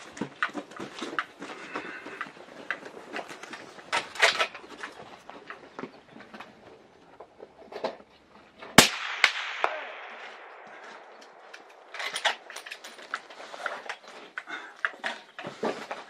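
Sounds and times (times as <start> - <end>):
echoing gunshot report: 8.8 - 11.9
loud rifle shot: 8.8 - 11.9.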